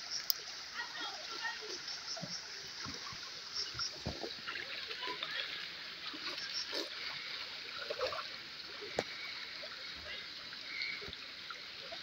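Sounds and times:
small water splashes: 0:00.0 - 0:12.0.

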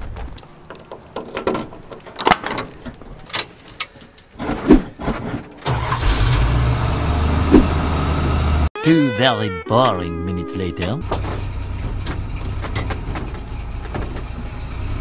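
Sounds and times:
keys jingling: 0:00.8 - 0:04.5
truck engine starting and rumbling: 0:01.0 - 0:08.7, 0:10.7 - 0:15.0
clicks and knocks: 0:11.8 - 0:14.6.

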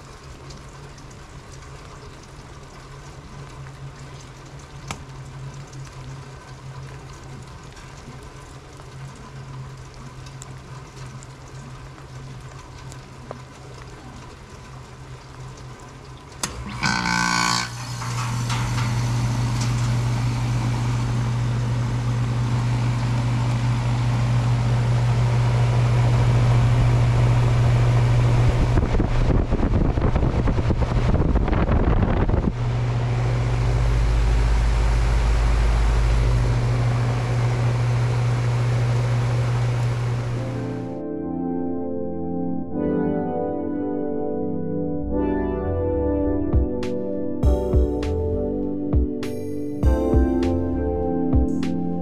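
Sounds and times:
compressor and fan humming: 0:14.6 - 0:40.9
heat pump click: 0:16.4 - 0:25.2
wind buffeting microphone: 0:26.7 - 0:33.7.

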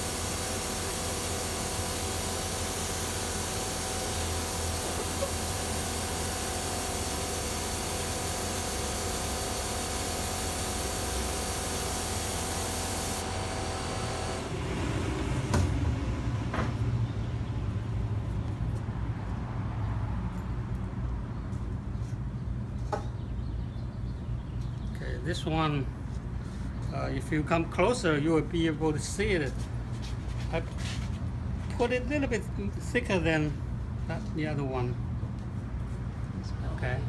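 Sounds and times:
spray gun hissing: 0:00.0 - 0:14.3.

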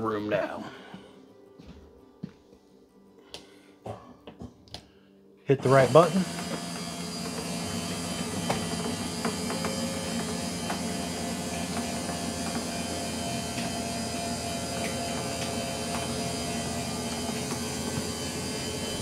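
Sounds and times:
electric motor humming: 0:05.6 - 0:19.0.

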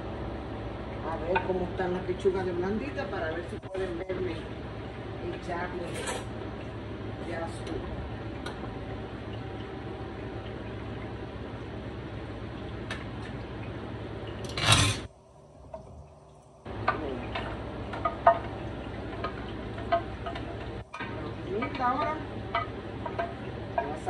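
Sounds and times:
loud scrape in pan: 0:14.5 - 0:15.1.

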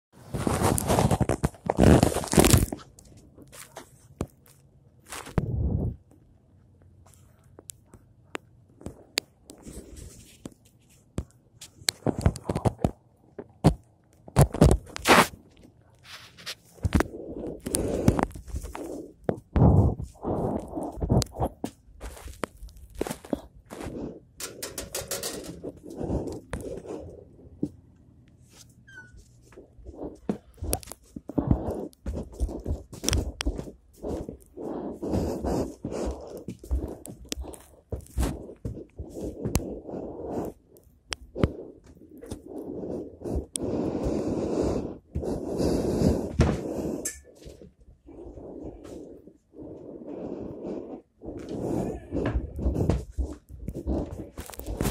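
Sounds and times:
footsteps: 0:18.1 - 0:27.8, 0:28.4 - 0:39.7, 0:51.4 - 0:54.9.

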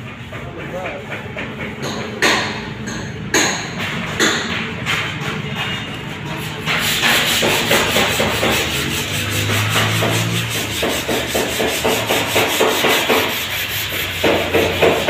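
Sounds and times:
hand sanding strokes: 0:06.1 - 0:15.0.

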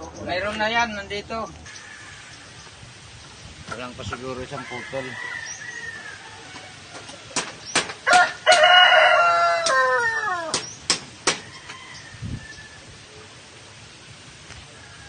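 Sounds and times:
rooster crowing: 0:01.7 - 0:02.5, 0:04.4 - 0:07.1, 0:08.0 - 0:10.6, 0:11.4 - 0:13.0, 0:14.7 - 0:15.0
sharp claps: 0:10.5 - 0:11.4.

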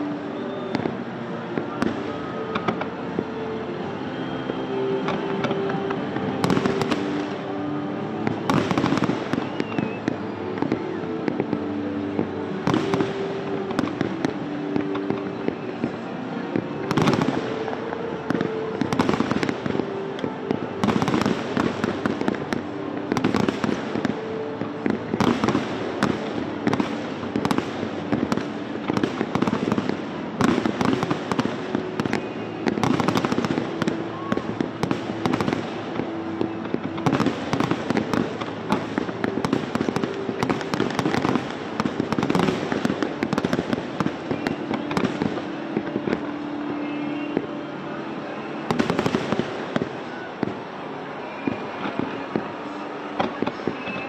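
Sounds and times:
fireworks bangs: 0:00.0 - 0:54.0
fireworks crackling: 0:00.0 - 0:54.0.

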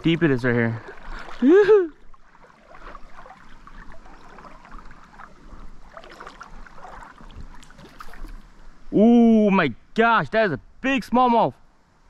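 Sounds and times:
light splashes: 0:00.0 - 0:08.6
river water sloshing: 0:00.0 - 0:08.9.

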